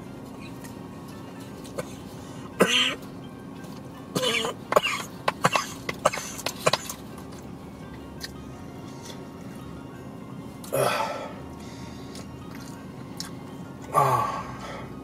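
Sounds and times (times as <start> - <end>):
man clearing his throat: 2.6 - 3.0
man coughing: 2.6 - 3.0, 4.2 - 6.8.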